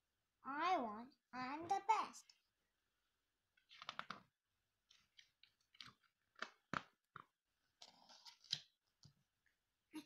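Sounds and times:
book pages rustling: 0:03.6 - 0:09.1.

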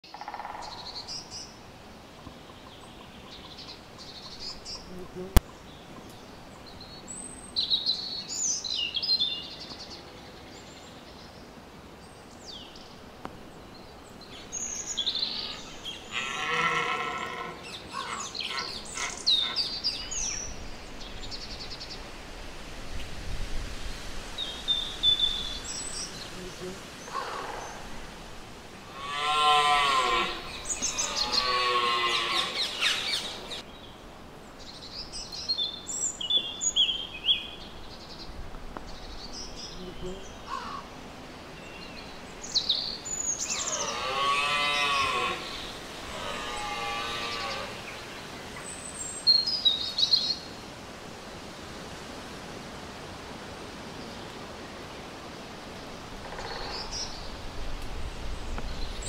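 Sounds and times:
red deer stag roaring: 0:16.1 - 0:19.6, 0:28.9 - 0:32.7, 0:43.6 - 0:47.8
small birds chirping: 0:29.0 - 0:34.0, 0:34.6 - 0:40.8.

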